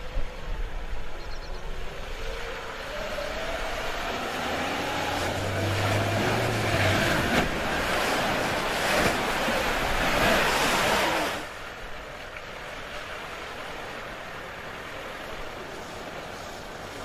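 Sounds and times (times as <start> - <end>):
engine low drone: 0.0 - 10.0
water splashing around wheels: 0.0 - 17.0.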